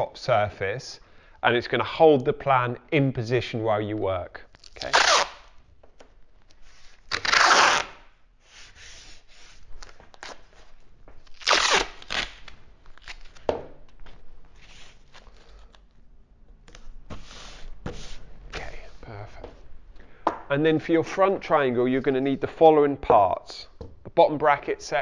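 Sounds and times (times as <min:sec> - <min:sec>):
masking tape ripping off roll: 0:04.5 - 0:05.6, 0:07.0 - 0:08.1, 0:11.2 - 0:13.5
tape tearing: 0:04.5 - 0:05.6, 0:06.7 - 0:08.1, 0:11.2 - 0:13.5.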